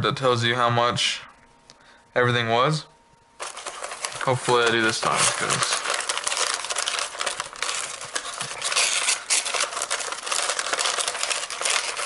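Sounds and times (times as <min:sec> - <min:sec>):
wrapping paper crinkling: 0:03.4 - 0:12.0.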